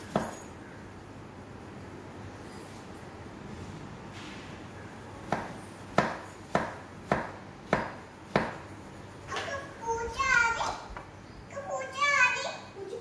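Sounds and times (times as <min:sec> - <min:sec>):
low room hum: 0:00.0 - 0:13.0
sharp knocks: 0:05.3 - 0:08.6.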